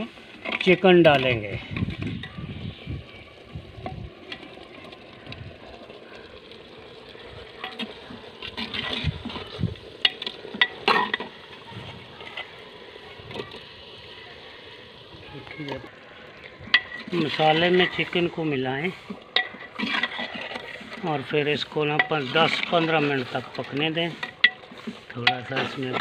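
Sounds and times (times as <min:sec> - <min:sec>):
ladle scraping clay pot: 0:06.8 - 0:13.7, 0:15.4 - 0:26.0.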